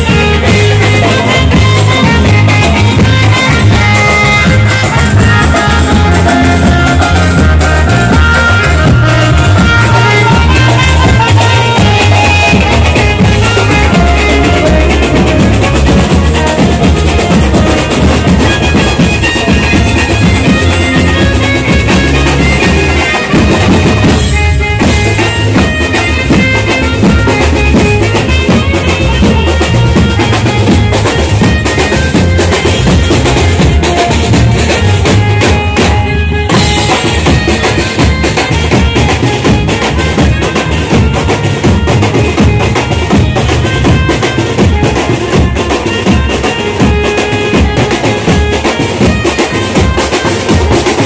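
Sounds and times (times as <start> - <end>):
street band playing festival music: 0.0 - 51.0.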